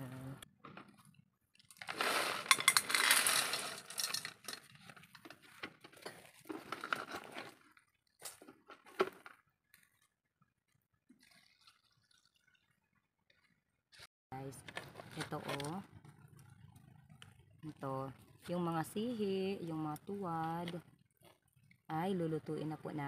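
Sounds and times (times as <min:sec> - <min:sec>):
water trickling: 0:11.0 - 0:13.6.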